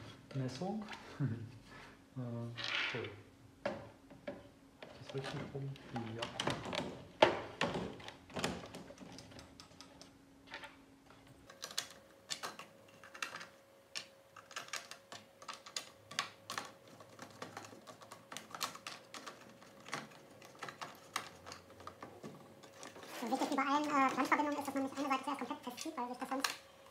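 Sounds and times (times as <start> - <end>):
faint steady hum: 0.0 - 26.9
plastic parts clicking together: 11.4 - 26.7.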